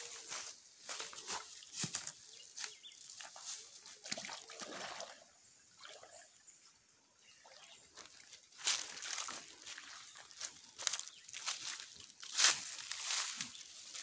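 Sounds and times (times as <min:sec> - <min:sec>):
stream water splashing: 0:03.2 - 0:06.5, 0:07.4 - 0:10.6.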